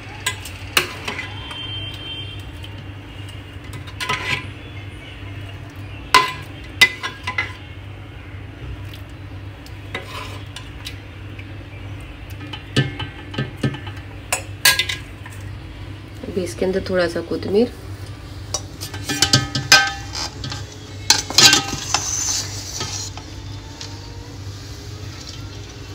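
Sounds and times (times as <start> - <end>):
metal spoon scraping a pot: 0.2 - 1.6, 3.6 - 4.6, 9.9 - 11.0, 18.5 - 23.9.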